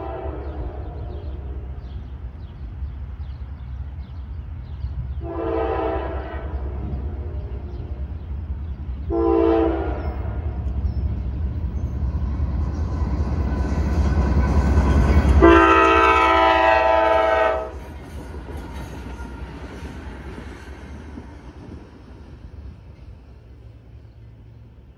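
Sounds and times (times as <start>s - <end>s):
train horn blast: 0.0s - 1.9s, 5.2s - 8.2s, 9.0s - 10.7s, 14.7s - 19.8s
diesel locomotive rumble: 0.0s - 24.9s
train cars rolling on rails: 0.0s - 24.9s.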